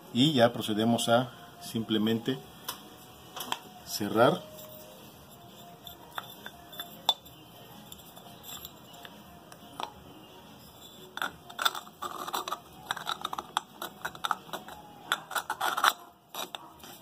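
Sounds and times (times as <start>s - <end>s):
plastic cap clicking: 11.2s - 16.6s.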